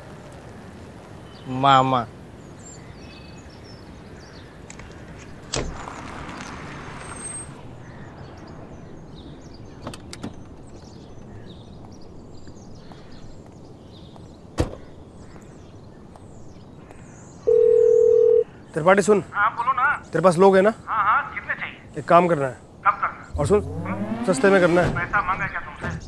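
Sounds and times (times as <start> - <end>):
car door shutting: 5.5 - 6.2
rushing noise: 23.3 - 25.9.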